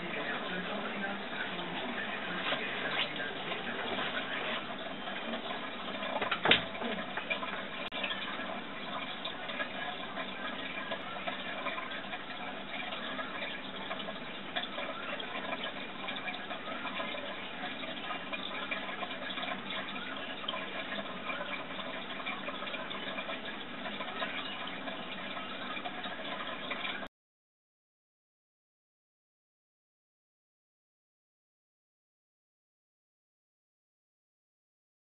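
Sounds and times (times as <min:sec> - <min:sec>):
water trickling and bubbling: 0:00.0 - 0:27.1.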